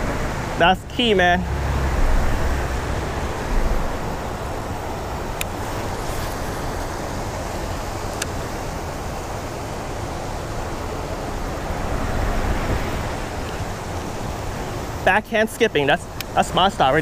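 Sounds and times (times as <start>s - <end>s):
wind buffeting microphone: 1.5s - 9.4s.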